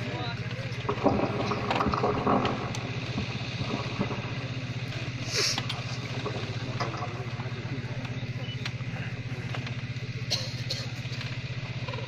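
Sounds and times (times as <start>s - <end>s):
low mechanical hum: 0.0s - 12.0s
short hiss: 5.2s - 5.7s.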